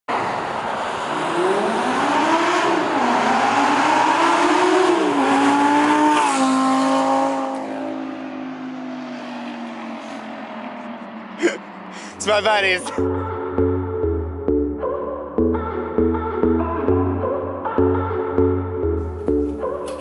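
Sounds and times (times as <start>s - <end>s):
sports car accelerating past: 0.1s - 11.9s.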